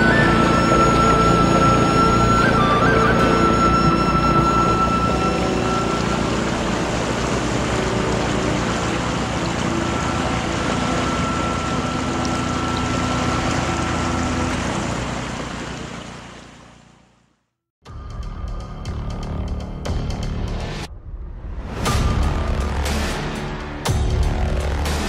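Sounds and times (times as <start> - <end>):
water splashing along a kayak: 0.0 - 17.2.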